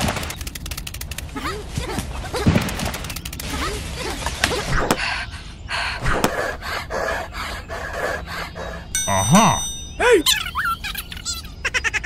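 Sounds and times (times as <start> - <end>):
rhythmic panting: 4.9 - 10.0.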